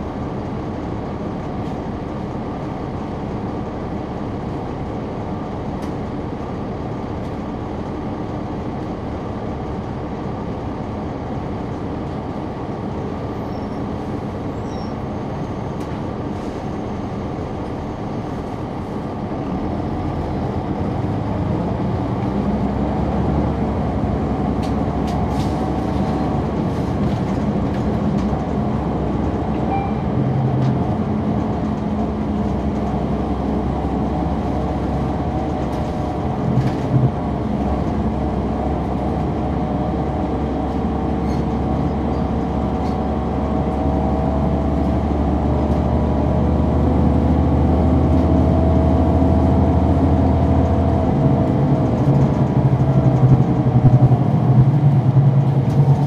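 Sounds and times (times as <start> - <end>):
bus diesel engine drone: 0.0 - 56.0.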